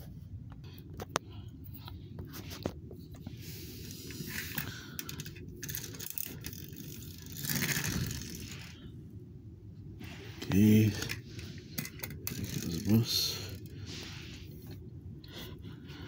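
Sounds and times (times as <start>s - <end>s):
toys scraping on wooden floor: 7.2s - 8.8s.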